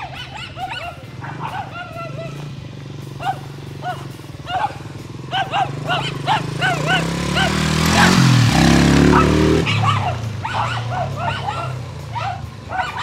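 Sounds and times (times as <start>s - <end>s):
dirt bike engine revving: 0.0s - 13.0s
dogs barking: 0.0s - 13.0s.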